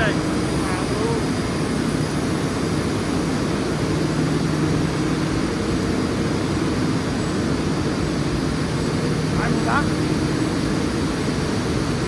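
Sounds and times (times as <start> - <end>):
industrial machine drone: 0.0 - 12.0.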